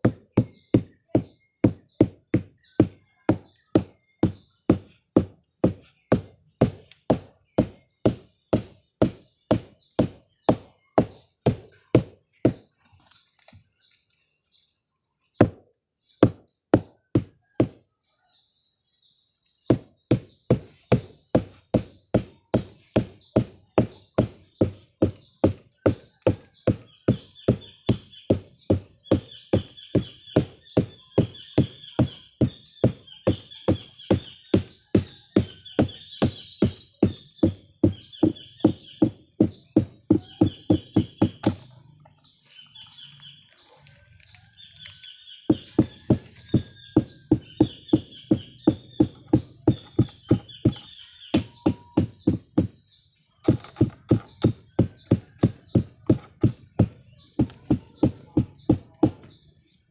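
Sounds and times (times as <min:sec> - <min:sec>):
mallet knocking on palm stalk: 0:39.8 - 0:41.7.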